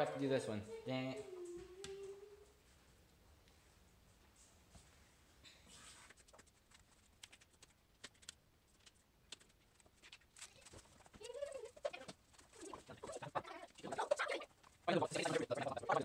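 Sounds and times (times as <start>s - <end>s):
wavering cooing voice: 0.7s - 2.6s, 11.2s - 16.0s.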